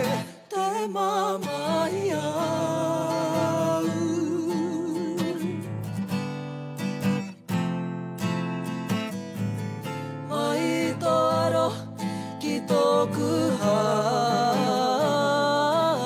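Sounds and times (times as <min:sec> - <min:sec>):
strummed acoustic guitar: 0:00.0 - 0:16.0.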